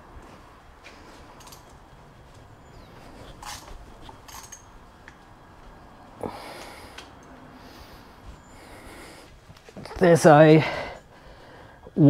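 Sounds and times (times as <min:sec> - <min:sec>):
person breathing: 0:06.2 - 0:09.6, 0:10.6 - 0:12.0.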